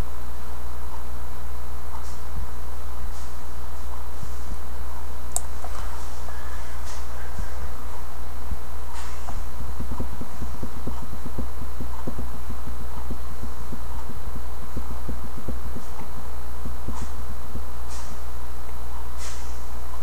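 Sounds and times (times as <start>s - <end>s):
loud steady low hum: 0.0s - 20.0s
soft irregular low ticks: 9.3s - 17.1s.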